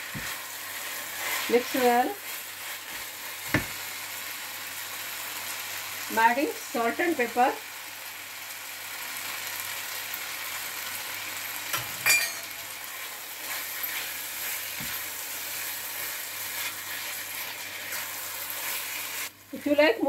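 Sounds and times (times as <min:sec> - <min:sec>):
stirring with wooden spatula: 0:00.0 - 0:04.0, 0:12.8 - 0:19.7
food sizzling in frying pan: 0:00.0 - 0:20.0.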